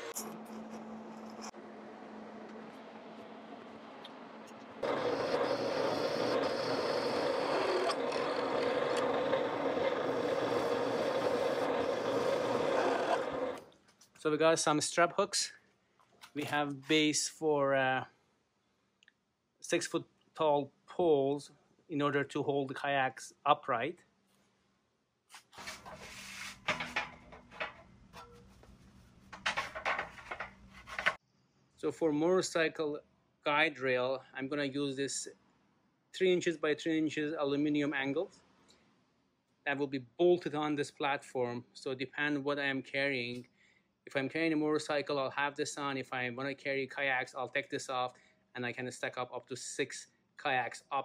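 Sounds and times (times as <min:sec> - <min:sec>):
metal clanks and scrapes: 0:00.0 - 0:01.6, 0:25.6 - 0:31.2
drill boring through steel: 0:04.8 - 0:13.6.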